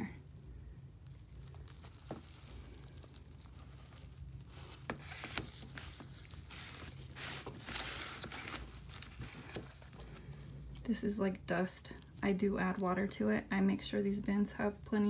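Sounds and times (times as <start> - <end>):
soft rubbing and scraping: 1.2 - 11.0.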